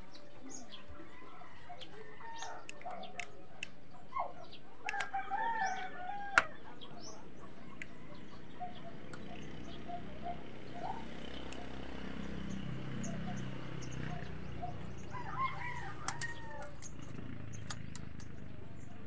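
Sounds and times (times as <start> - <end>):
small birds chirping: 0.0 - 19.0
rooster crowing: 4.9 - 6.6, 15.1 - 16.9.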